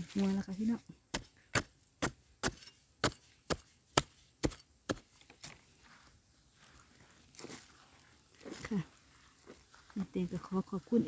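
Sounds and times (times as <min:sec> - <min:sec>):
metal blade chopping into soil: 0:00.1 - 0:05.5.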